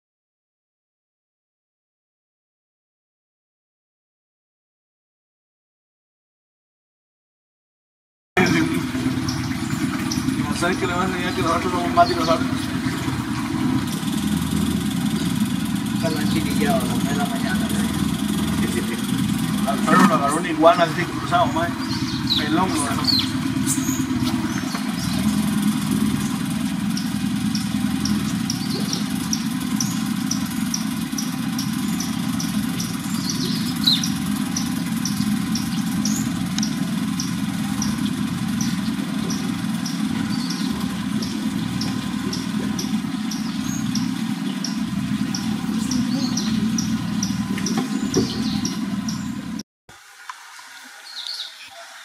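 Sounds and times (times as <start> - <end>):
engine idling: 8.4 - 49.6
faint high ticking: 8.4 - 49.6.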